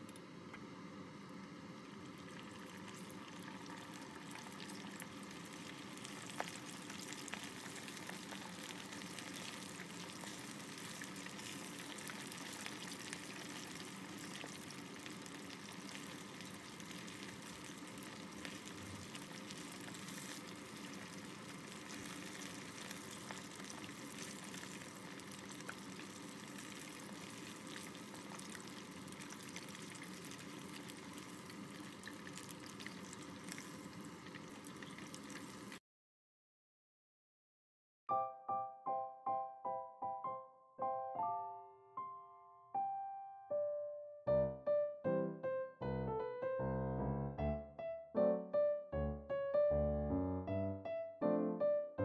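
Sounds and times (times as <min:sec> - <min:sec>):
chicken deep-frying in oil: 0:00.5 - 0:35.8
small crackles and clicks: 0:02.2 - 0:35.8.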